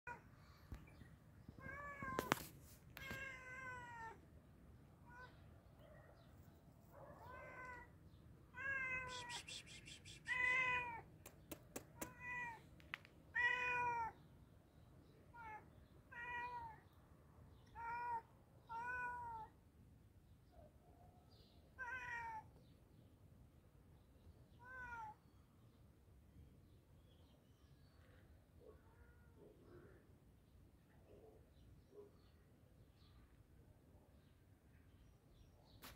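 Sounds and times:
cat meowing: 0:03.0 - 0:04.2, 0:07.2 - 0:07.9, 0:08.6 - 0:09.4, 0:10.3 - 0:11.0, 0:12.0 - 0:12.6, 0:13.4 - 0:14.2, 0:15.3 - 0:16.8, 0:17.8 - 0:19.5, 0:21.8 - 0:22.5, 0:24.6 - 0:25.2.

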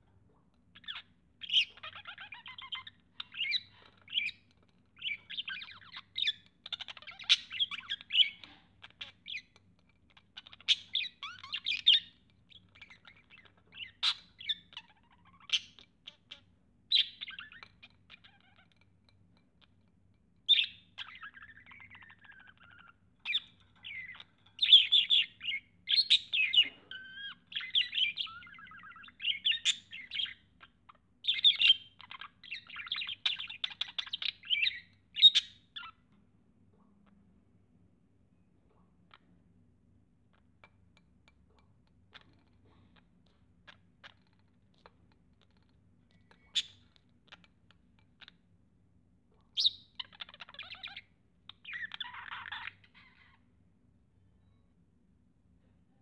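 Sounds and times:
budgerigar chirping and chattering: 0:00.8 - 0:18.8, 0:20.5 - 0:36.0, 0:46.2 - 0:48.4, 0:49.5 - 0:53.4.

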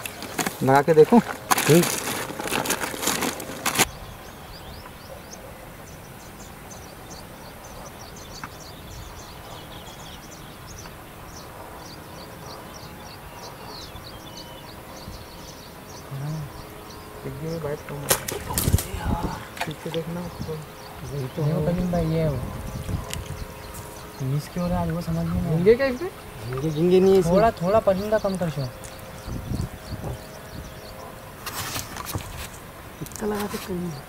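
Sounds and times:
loud rustling: 0:00.0 - 0:03.9
plastic bag crinkling: 0:00.0 - 0:03.9
chorus of high chirps: 0:00.0 - 0:34.0.

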